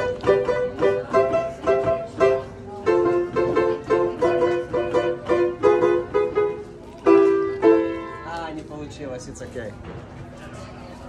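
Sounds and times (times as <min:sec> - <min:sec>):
piano playing repeated chords: 0:00.0 - 0:08.3.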